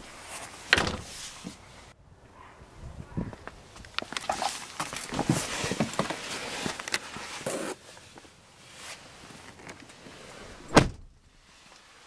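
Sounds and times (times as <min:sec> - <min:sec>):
car door slamming shut: 0:00.7 - 0:01.1, 0:10.7 - 0:11.1.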